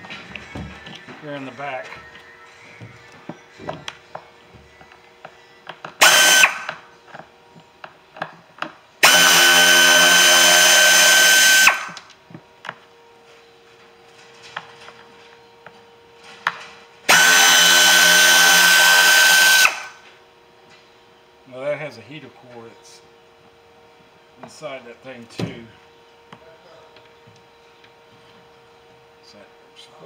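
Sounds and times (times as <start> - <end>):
power drill spinning out screws: 6.0 - 6.8, 9.0 - 12.0, 17.1 - 20.0.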